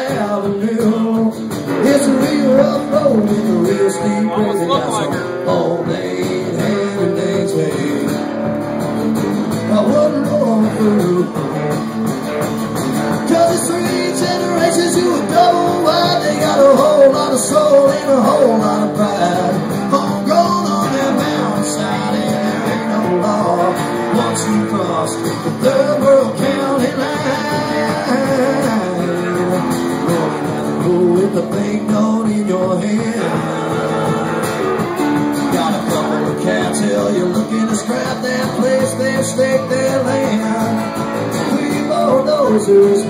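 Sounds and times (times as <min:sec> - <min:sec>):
acoustic guitar strumming: 0:00.0 - 0:43.0
lap steel guitar sliding notes: 0:01.7 - 0:09.2.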